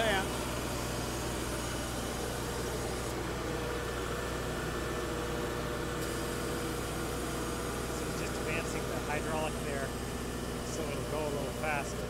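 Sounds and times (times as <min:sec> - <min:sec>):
motor and hydraulic pump humming: 0:00.0 - 0:12.0.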